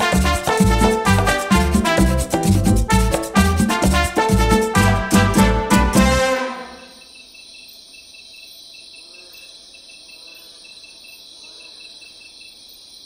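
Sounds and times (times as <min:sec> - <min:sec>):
music: 0:00.0 - 0:07.0
insects chirping: 0:06.8 - 0:13.0.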